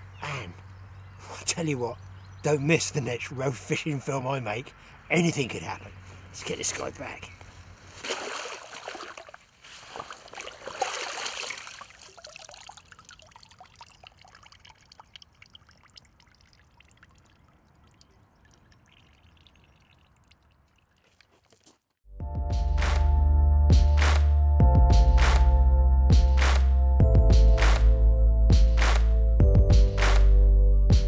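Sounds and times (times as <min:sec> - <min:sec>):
water lapping and trickling: 0:07.5 - 0:22.0
lake water splashing: 0:07.8 - 0:21.8
music: 0:22.1 - 0:31.0.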